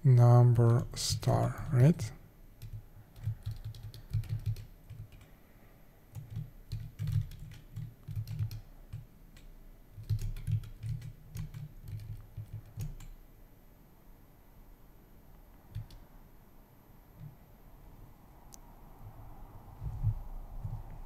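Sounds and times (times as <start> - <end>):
typing on computer keyboard: 2.6 - 5.4, 6.1 - 13.2, 15.7 - 16.0.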